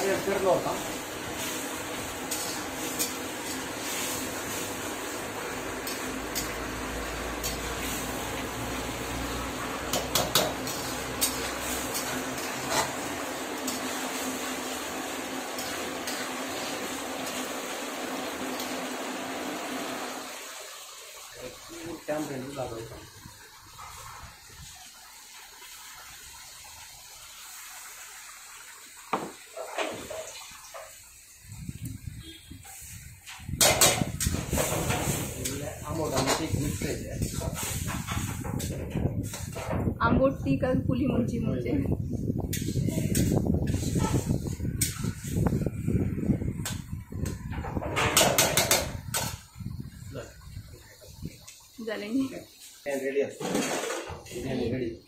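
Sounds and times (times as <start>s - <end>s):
gravy sizzling in a pan: 0.0s - 39.7s, 42.4s - 54.9s
metal spatula scraping a pan: 2.2s - 4.6s, 10.0s - 14.2s, 42.5s - 45.4s
knocks and scrapes in pan: 9.8s - 13.0s, 37.2s - 39.9s, 46.7s - 49.4s, 53.4s - 54.3s.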